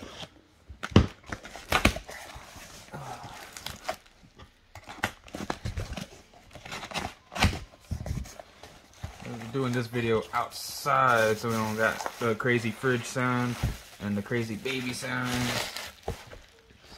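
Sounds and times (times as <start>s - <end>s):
bubble wrap crinkling: 8.9s - 16.7s.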